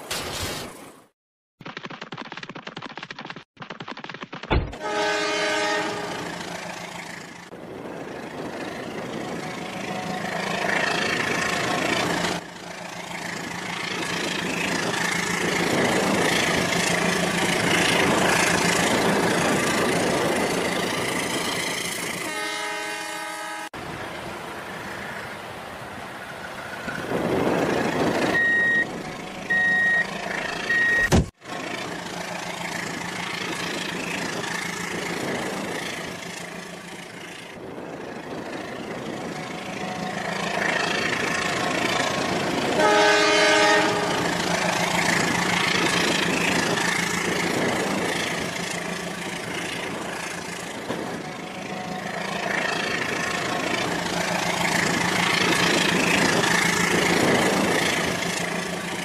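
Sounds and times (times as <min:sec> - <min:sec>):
electronic horn: 0:04.7 - 0:06.2, 0:22.2 - 0:23.8, 0:42.8 - 0:44.3
short electronic beeps: 0:28.3 - 0:28.9, 0:29.5 - 0:31.2.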